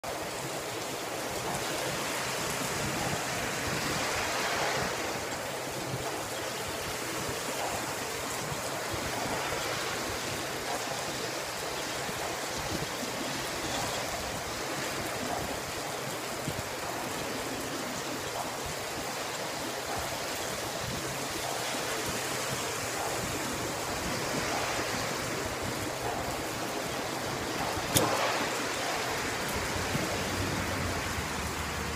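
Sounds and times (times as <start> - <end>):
heavy rain pouring: 0.0 - 31.9
sharp click: 27.9 - 28.4.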